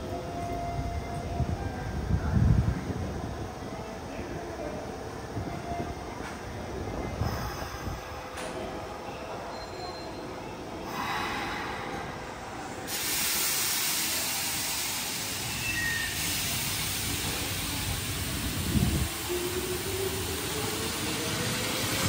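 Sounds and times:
train low rumble: 0:00.0 - 0:09.5, 0:10.6 - 0:22.0
compressed air hissing: 0:10.9 - 0:19.2.

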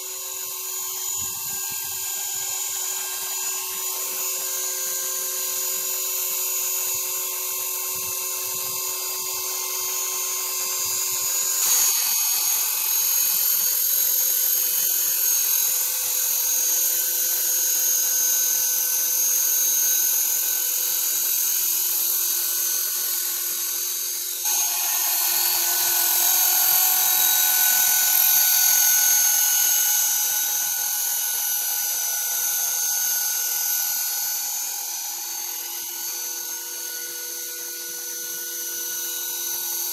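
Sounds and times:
toy helicopter rotor whine: 0:00.0 - 0:39.9.

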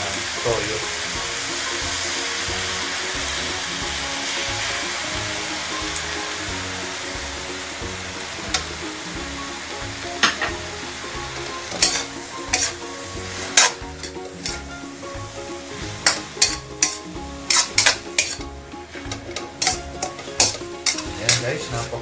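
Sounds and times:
vegetables sizzling in a wok: 0:00.0 - 0:22.0
spatula clacking and scraping pan: 0:07.4 - 0:09.4, 0:10.2 - 0:22.0.

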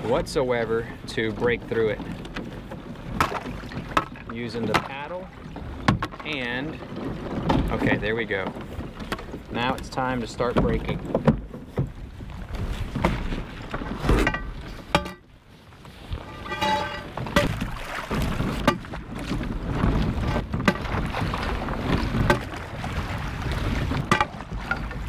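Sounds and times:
slush sloshing: 0:15.9 - 0:25.0
metal pipe striking ice: 0:16.3 - 0:17.5.

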